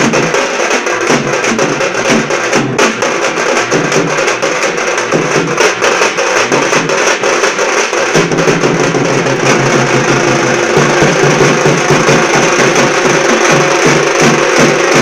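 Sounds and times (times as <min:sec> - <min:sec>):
drum band playing fast beat: 0:00.0 - 0:15.0
metal hand percussion: 0:00.0 - 0:15.0
bass drum strokes: 0:08.2 - 0:15.0.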